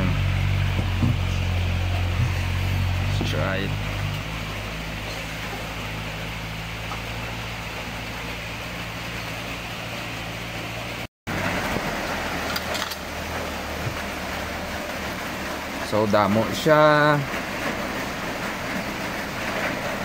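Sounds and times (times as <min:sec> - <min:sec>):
motor humming: 0:00.0 - 0:15.8.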